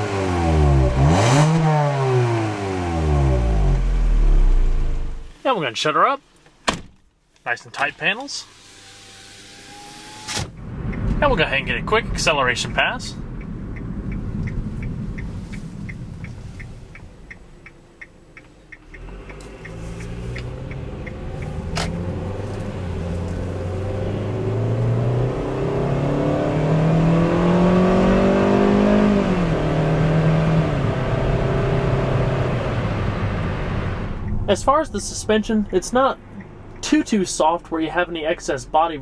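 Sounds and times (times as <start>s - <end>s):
car engine accelerating: 0.0s - 5.4s, 8.4s - 39.0s
steady ticking: 11.7s - 23.9s, 34.0s - 38.6s.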